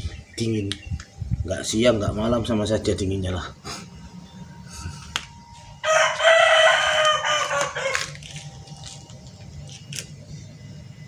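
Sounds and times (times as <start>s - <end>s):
rooster crowing: 5.8s - 8.4s.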